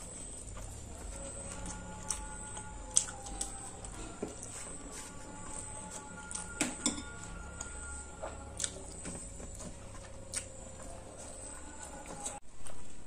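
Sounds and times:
background music of held tones: 0.0s - 13.0s
chewing clicks and smacks: 8.6s - 11.0s.

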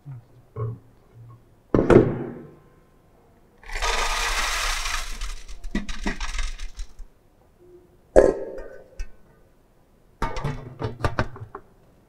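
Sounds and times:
metal sieves scraping and rattling: 3.6s - 7.1s.

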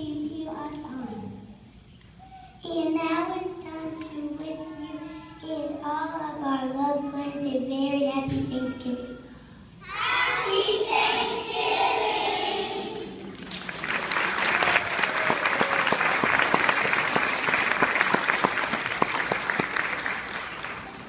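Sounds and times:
children singing: 9.8s - 13.1s
audience applauding: 13.2s - 21.0s.

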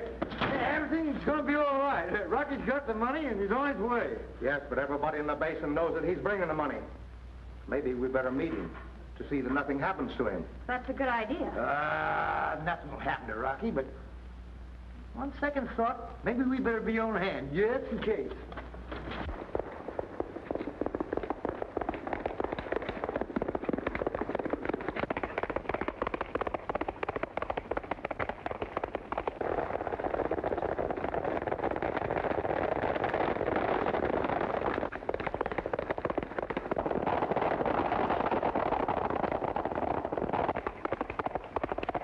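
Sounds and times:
horses galloping on dirt: 18.0s - 42.0s.

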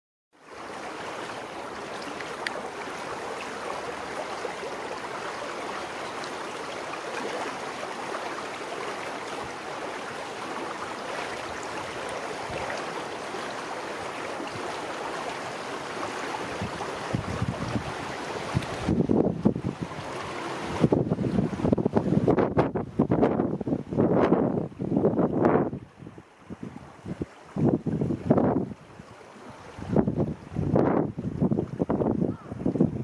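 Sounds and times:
faint click: 2.2s - 2.6s.

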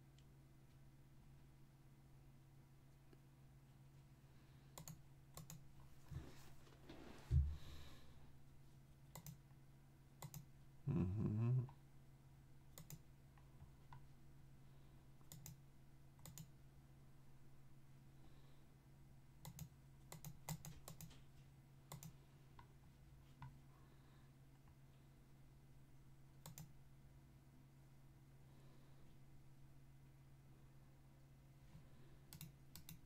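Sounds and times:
steady low hum: 0.0s - 33.0s
mouse and keyboard clicking: 4.8s - 5.6s, 9.1s - 9.4s, 10.2s - 10.5s, 12.8s - 13.0s, 15.3s - 15.6s, 16.2s - 16.5s, 19.4s - 21.2s, 26.4s - 26.7s, 32.3s - 33.0s.

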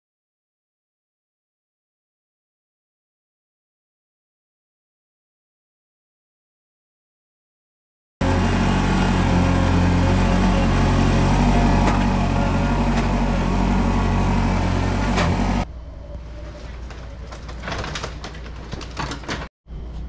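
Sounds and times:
tractor engine running under load: 8.2s - 15.7s.

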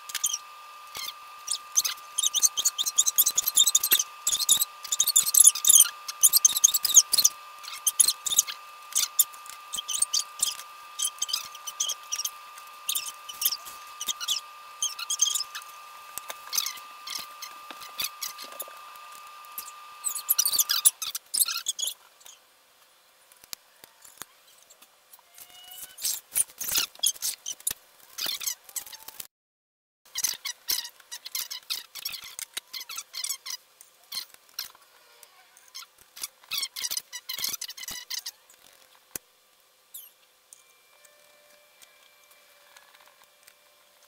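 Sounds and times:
steady high tone: 0.0s - 21.0s
screwdriver clicks and squeaks: 0.1s - 22.4s.

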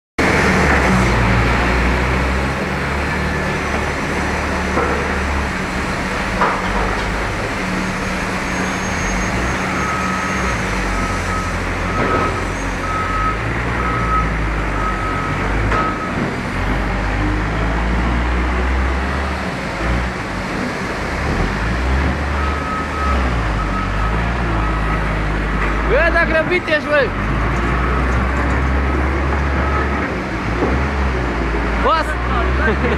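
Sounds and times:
diesel engine running: 0.2s - 32.9s
reversing alarm beeps: 8.4s - 16.2s, 22.4s - 25.1s, 29.6s - 30.0s.

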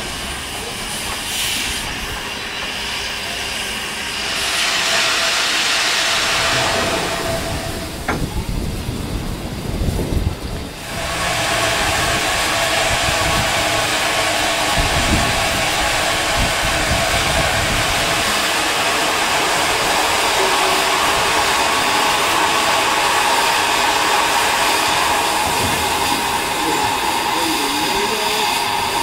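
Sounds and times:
steam hissing from locomotive: 0.0s - 29.0s
low rumbles: 5.9s - 10.8s.

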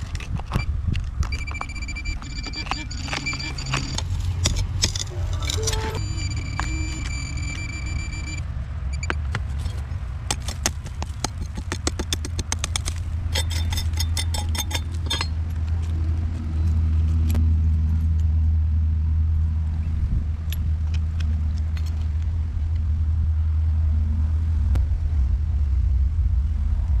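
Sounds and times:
low rumble: 1.4s - 9.0s, 14.9s - 27.0s
screwdriver scraping brick: 2.2s - 6.0s, 9.6s - 15.4s.

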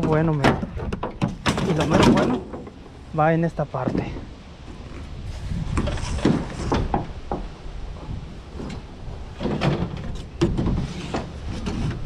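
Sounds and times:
hard plastic knocking and clattering: 0.0s - 2.8s.

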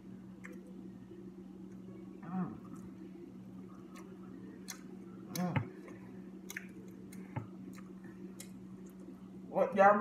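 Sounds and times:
wet chewing: 3.7s - 9.2s
lip smacks and clicks: 3.8s - 5.5s, 6.4s - 9.1s.

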